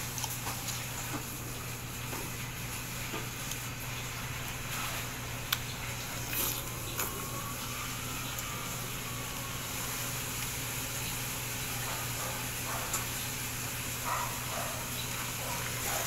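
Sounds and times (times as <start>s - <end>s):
low hum and hiss: 0.0s - 16.0s
juice slurping by mouth: 6.0s - 9.1s.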